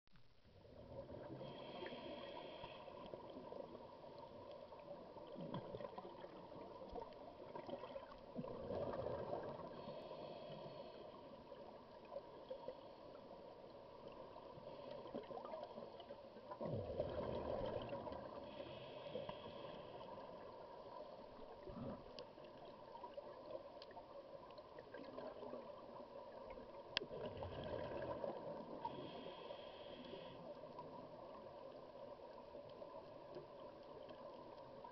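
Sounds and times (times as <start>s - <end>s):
faint steady hum: 0.1s - 34.9s
scuba breathing through regulator: 1.3s - 3.2s, 9.6s - 11.3s, 18.4s - 20.2s, 28.8s - 30.6s
bubbles of exhaled air: 7.5s - 9.9s, 16.5s - 18.6s, 27.1s - 29.0s.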